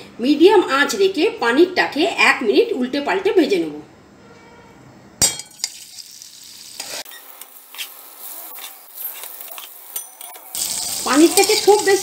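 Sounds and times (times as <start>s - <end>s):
food sizzling in hot oil: 5.4s - 12.0s.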